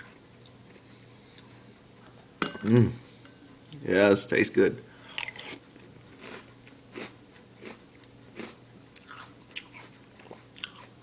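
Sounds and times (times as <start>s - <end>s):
cereal crunching while chewed: 5.4s - 11.0s.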